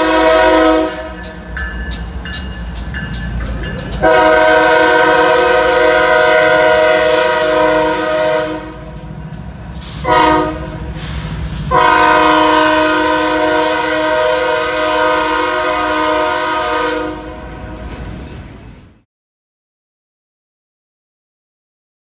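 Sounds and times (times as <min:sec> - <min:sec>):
train air horn blasts: 0:00.0 - 0:01.4, 0:04.0 - 0:09.1, 0:09.9 - 0:17.9
passing train rumble: 0:00.0 - 0:19.1.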